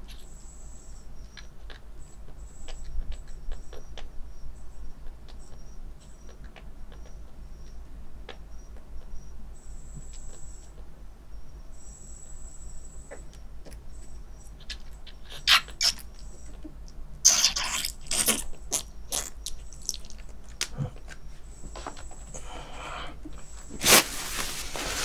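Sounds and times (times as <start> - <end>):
rustling and scraping: 20.1 - 22.6, 23.2 - 25.0.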